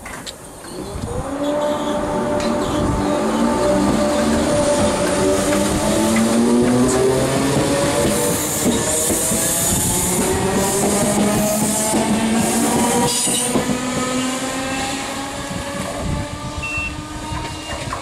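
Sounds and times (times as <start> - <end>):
train wheels whining on rails: 0.0 - 18.0.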